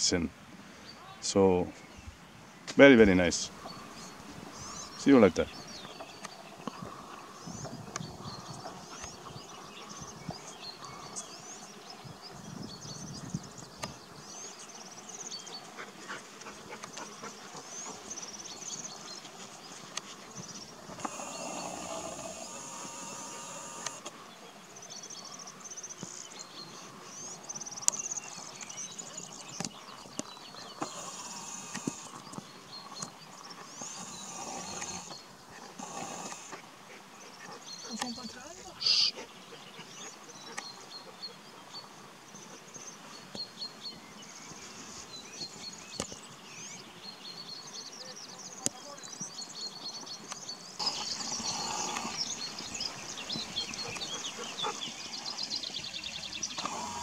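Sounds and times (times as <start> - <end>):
high-pitched chirping: 38.8 - 39.1.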